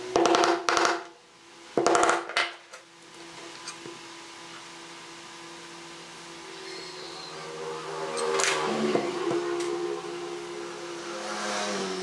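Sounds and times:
hammer tapping a nail into wood: 0.2s - 1.1s.

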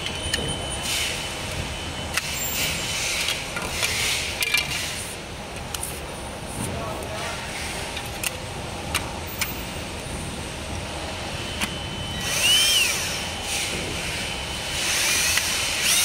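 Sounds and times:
cordless drill motor whine: 11.6s - 16.0s.

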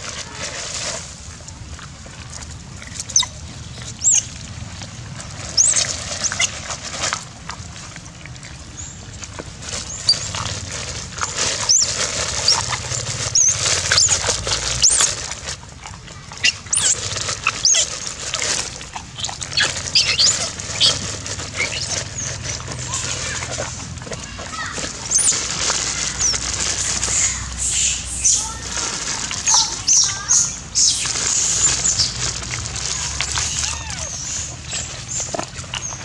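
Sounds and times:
monkeys squeaking: 3.0s - 4.4s, 5.5s - 6.6s, 9.8s - 10.6s, 11.2s - 15.2s, 16.4s - 23.8s, 24.5s - 36.0s.

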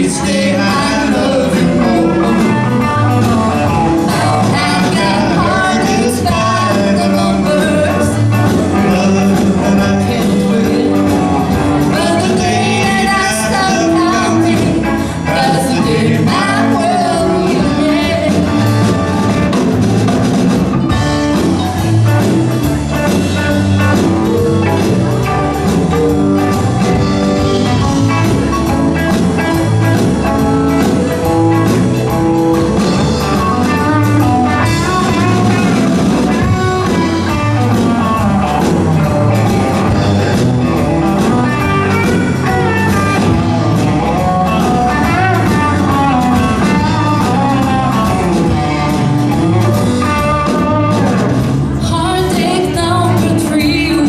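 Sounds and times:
live band playing: 0.0s - 54.0s
woman singing: 3.6s - 8.6s, 11.8s - 18.7s, 51.8s - 54.0s.

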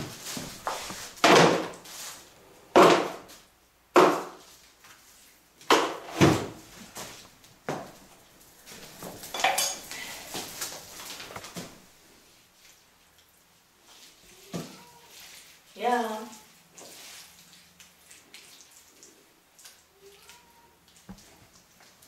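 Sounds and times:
objects knocking and clattering: 0.0s - 1.8s, 8.8s - 11.8s
metal tools clinking: 9.2s - 10.2s.

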